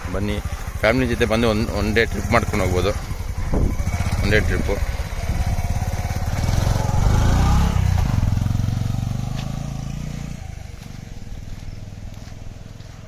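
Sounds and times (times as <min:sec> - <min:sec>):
motorcycle engine throbbing: 0:00.0 - 0:13.0.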